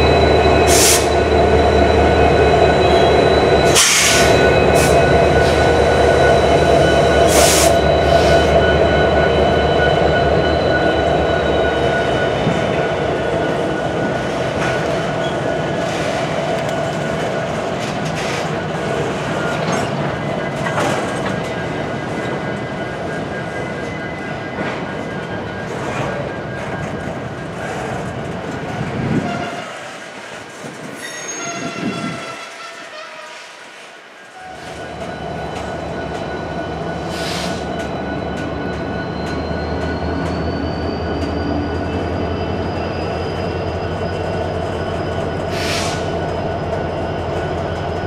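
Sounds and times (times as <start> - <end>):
diesel locomotives rumbling: 0.0 - 48.0
high-pitched wheel squealing: 34.4 - 48.0.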